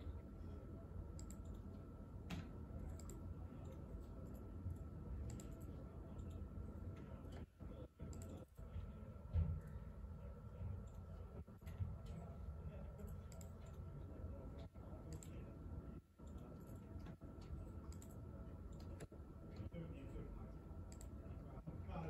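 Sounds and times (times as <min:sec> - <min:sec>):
low room hum: 0:00.0 - 0:22.0
faint clicks and taps: 0:01.1 - 0:09.8, 0:10.6 - 0:13.9, 0:16.2 - 0:20.2.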